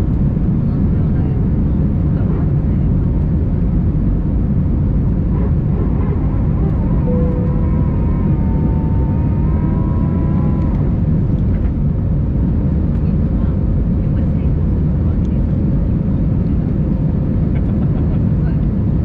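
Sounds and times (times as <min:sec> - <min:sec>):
airliner cabin engine rumble: 0:00.0 - 0:19.0
faint wavering tone: 0:06.2 - 0:10.8
brief tone: 0:06.6 - 0:10.8.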